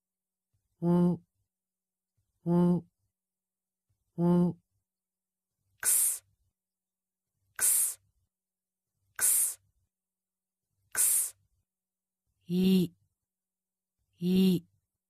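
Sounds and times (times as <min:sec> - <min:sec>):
woman voicing letter sounds: 0:12.5 - 0:13.0, 0:14.2 - 0:14.7.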